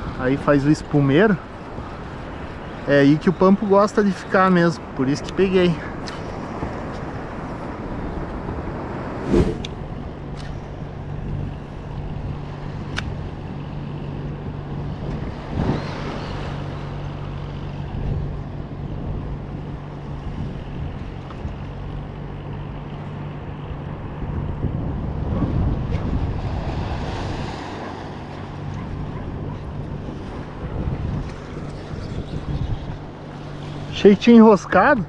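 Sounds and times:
sea water around kayak: 0.0s - 35.0s
wind on microphone: 6.0s - 21.6s, 23.5s - 33.9s.

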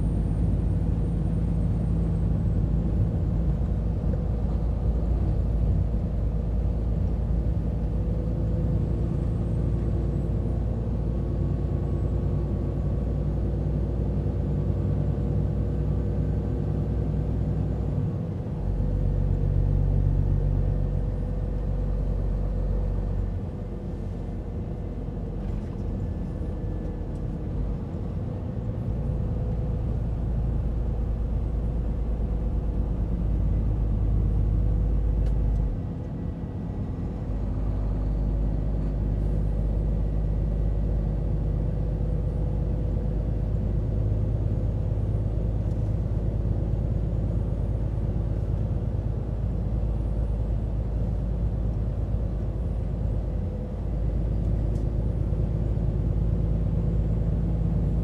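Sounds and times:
truck diesel engine drone: 0.0s - 58.0s.

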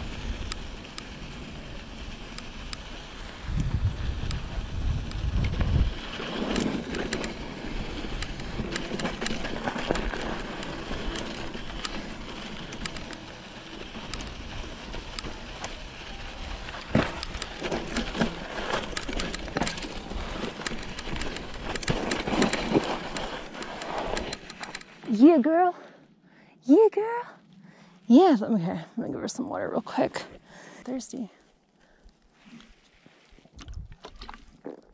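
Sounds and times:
bike tyres crunching on dirt: 0.0s - 25.1s
bike clicks and rattles: 0.0s - 25.2s.

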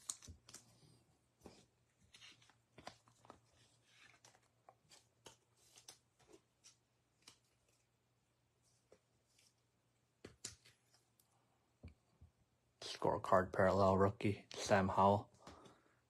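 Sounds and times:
trading cards clicking and rustling: 0.0s - 7.8s.

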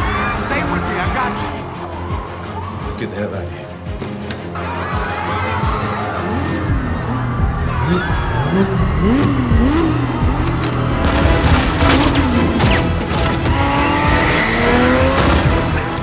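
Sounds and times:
film score music: 0.0s - 16.0s
car engine revving: 6.0s - 16.0s.

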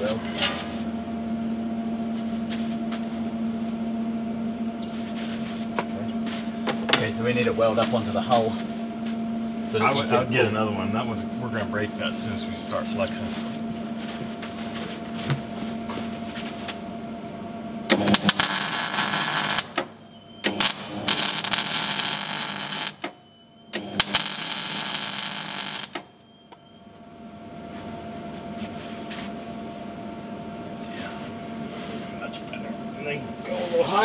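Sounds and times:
machine hum: 0.0s - 34.0s
welder crackling hiss: 17.9s - 23.1s, 23.8s - 26.0s.

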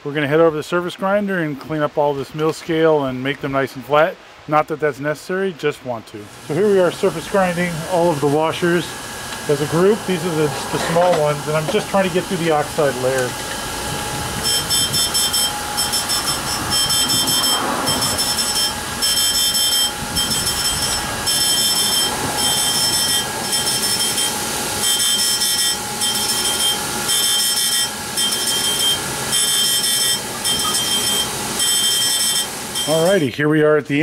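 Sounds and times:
machine hum: 6.2s - 33.1s
high-pitched grinding whine: 6.3s - 33.3s.

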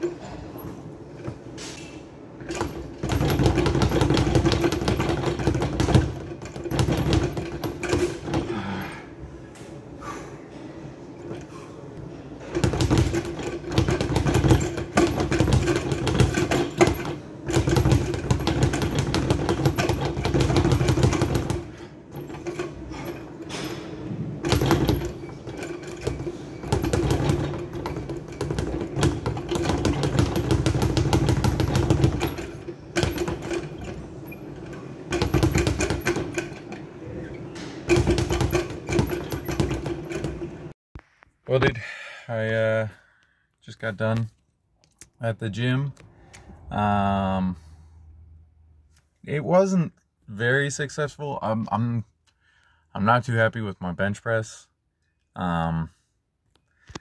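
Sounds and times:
speed bag rattling: 2.5s - 8.5s, 12.5s - 23.2s, 24.4s - 34.4s, 35.1s - 36.6s, 37.9s - 40.4s.

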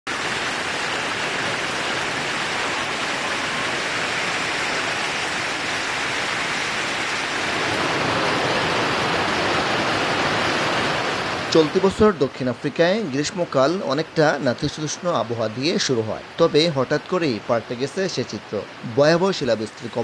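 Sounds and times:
hail and rain on street and cars: 0.1s - 11.9s.

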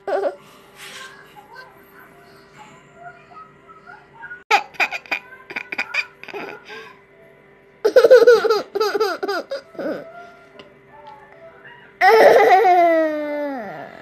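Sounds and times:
baby laughing: 4.5s - 6.8s, 7.9s - 10.0s, 12.0s - 13.8s.

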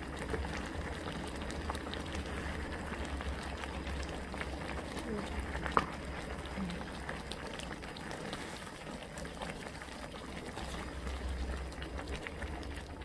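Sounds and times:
liquid bubbling at a boil: 0.0s - 13.0s.

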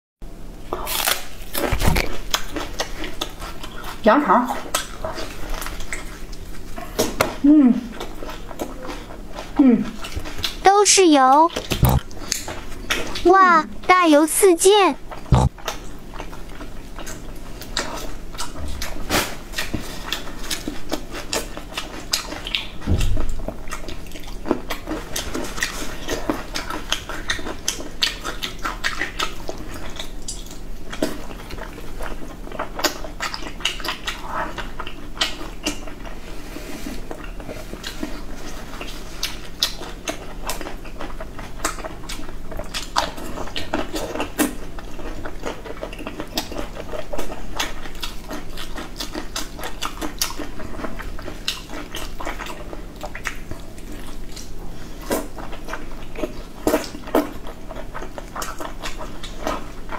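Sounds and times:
wet chewing smacks: 11.4s - 13.3s, 15.1s - 36.2s, 37.0s - 59.9s
dull bump: 22.8s - 23.5s.

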